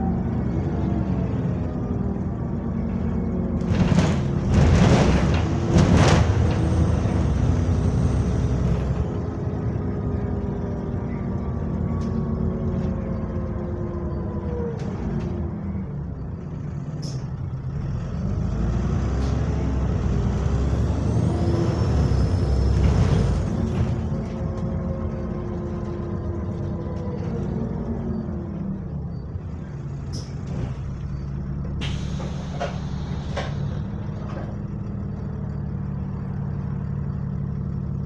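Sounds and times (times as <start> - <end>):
diesel bus engine: 0.0 - 38.0
air brakes hissing: 31.8 - 34.0.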